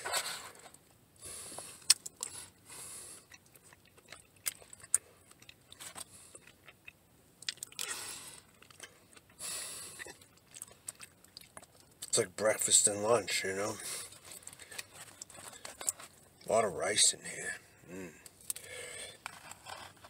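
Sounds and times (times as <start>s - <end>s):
person chewing food: 1.4s - 12.1s, 13.8s - 16.4s, 18.2s - 20.0s.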